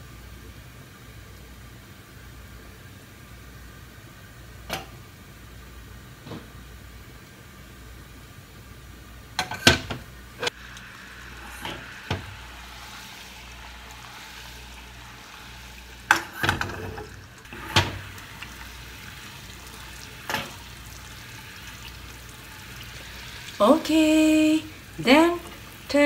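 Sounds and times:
syrup boiling hiss: 0:06.9 - 0:26.0.

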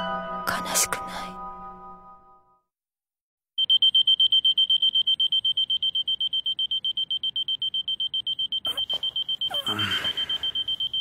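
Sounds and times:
alarm clock beeping: 0:03.6 - 0:11.0.

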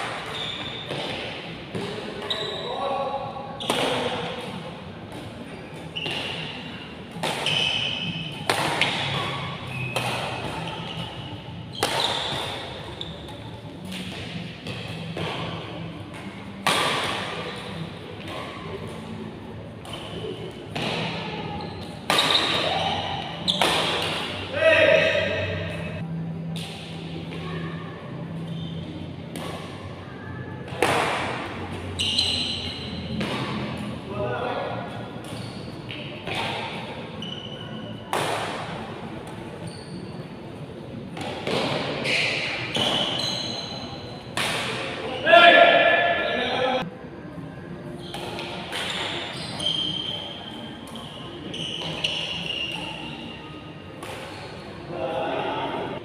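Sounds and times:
rackets hitting shuttlecock: 0:00.0 - 0:02.0, 0:03.6 - 0:19.2, 0:19.8 - 0:25.9, 0:29.3 - 0:29.9, 0:30.7 - 0:33.9, 0:34.8 - 0:37.0, 0:38.1 - 0:39.5, 0:41.1 - 0:43.2, 0:44.2 - 0:45.1, 0:48.0 - 0:49.9, 0:54.0 - 0:54.7
shoe squeaks: 0:00.2 - 0:01.0, 0:02.2 - 0:03.0, 0:05.4 - 0:06.8, 0:07.4 - 0:13.5, 0:19.9 - 0:24.0, 0:28.4 - 0:29.0, 0:31.9 - 0:33.2, 0:35.3 - 0:36.1, 0:37.1 - 0:38.1, 0:39.5 - 0:40.4, 0:42.0 - 0:44.3, 0:48.8 - 0:54.9.

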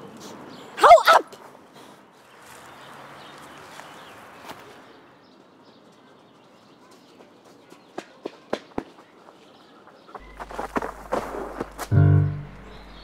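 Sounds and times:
distant bird calls: 0:09.6 - 0:13.0
footsteps: 0:10.2 - 0:13.0.

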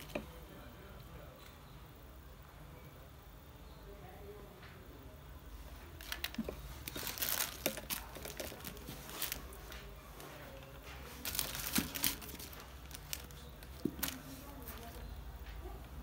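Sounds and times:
plastic crinkling and rustling: 0:05.6 - 0:16.0.

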